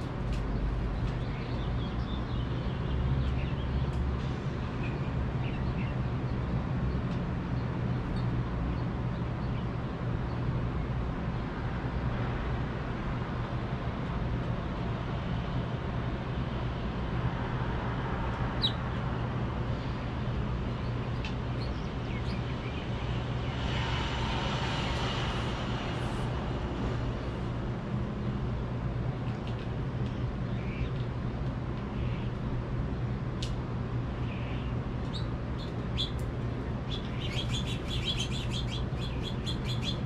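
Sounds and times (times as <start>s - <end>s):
small birds chirping: 0.0s - 4.0s, 18.5s - 19.1s, 19.7s - 23.7s, 34.2s - 40.0s
city traffic hum: 0.0s - 40.0s.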